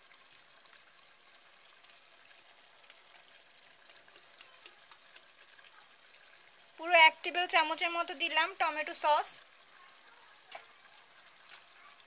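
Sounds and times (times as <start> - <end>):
meat sizzling in a pot: 0.0 - 12.0
small crackles: 1.8 - 6.2, 9.7 - 12.0.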